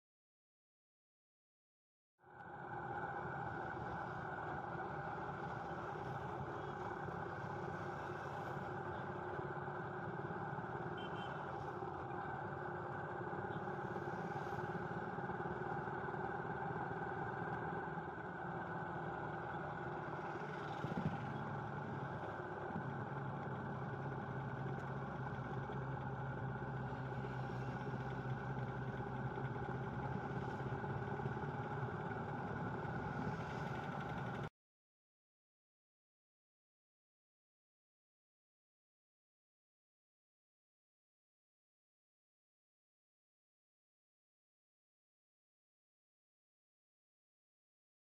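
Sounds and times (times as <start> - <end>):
vehicle engine running: 2.3 - 34.5
tyre and road noise: 2.5 - 34.5.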